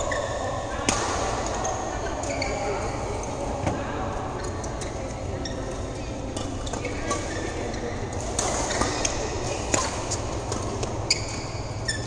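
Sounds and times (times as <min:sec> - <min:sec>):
court shoes squeaking: 0:00.0 - 0:03.7, 0:04.3 - 0:12.0
racket hitting shuttlecock: 0:08.2 - 0:11.4.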